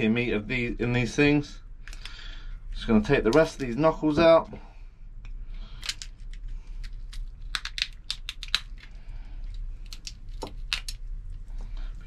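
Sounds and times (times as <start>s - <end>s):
crab shell cracking: 5.7s - 11.4s.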